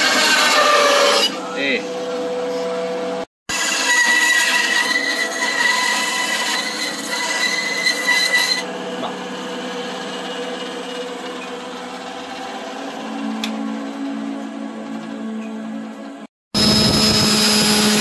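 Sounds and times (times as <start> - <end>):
band saw cutting wood: 0.0 - 1.4, 3.5 - 13.3, 16.6 - 18.0
band saw humming idle: 0.0 - 14.7, 16.6 - 18.0.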